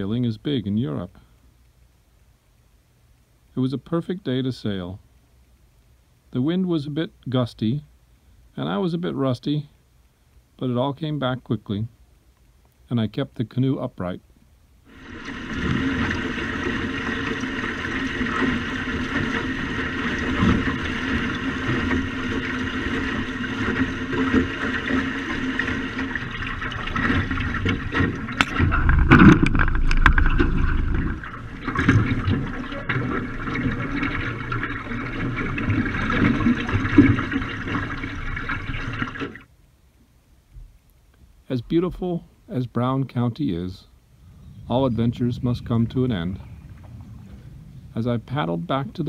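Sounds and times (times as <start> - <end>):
water splashing along canoe hull: 14.9 - 39.5, 44.4 - 49.0
wind buffeting microphone: 44.1 - 49.0.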